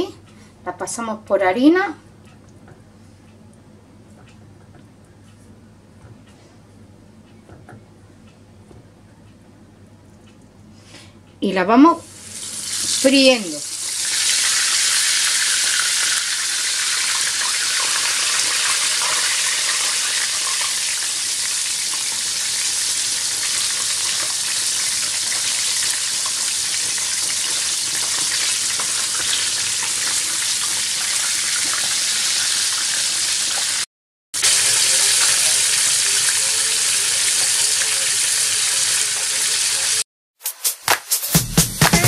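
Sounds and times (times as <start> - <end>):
bread frying in hot oil: 12.1 - 40.0.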